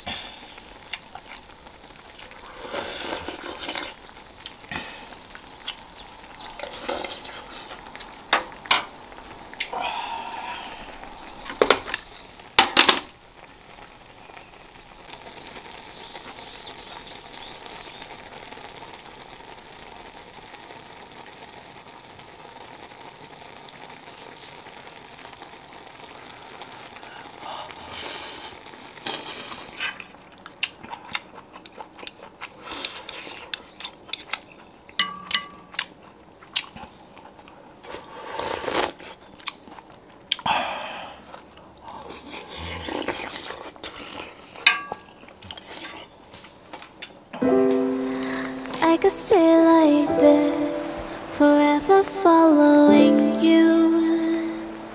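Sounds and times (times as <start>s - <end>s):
broth simmering and bubbling: 0.0s - 54.9s.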